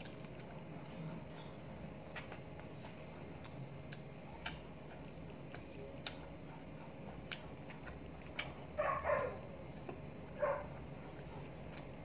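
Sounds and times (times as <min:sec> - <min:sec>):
mouth clicks and smacks: 0:00.0 - 0:08.8
low steady hum: 0:00.0 - 0:12.0
person chewing french fries: 0:00.0 - 0:12.0.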